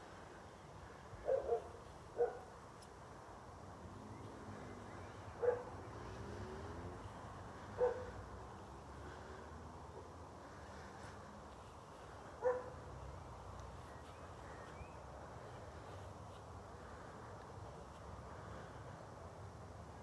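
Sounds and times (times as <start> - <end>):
dog barking: 1.2 - 2.5, 5.4 - 5.7, 7.8 - 8.2, 12.4 - 12.8.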